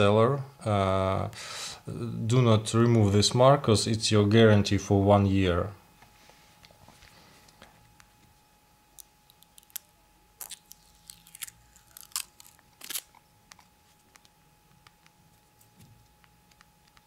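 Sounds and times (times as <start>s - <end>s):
plastic wrapping rustling: 9.4s - 14.3s.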